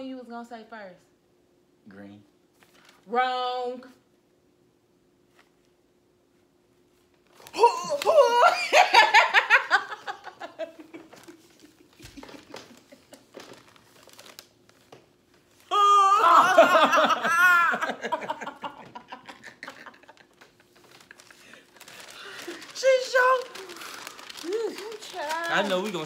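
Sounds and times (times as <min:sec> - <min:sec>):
woman shrieking with laughter: 0:07.5 - 0:10.3, 0:15.7 - 0:19.0
rustling: 0:10.5 - 0:15.7, 0:19.5 - 0:26.0.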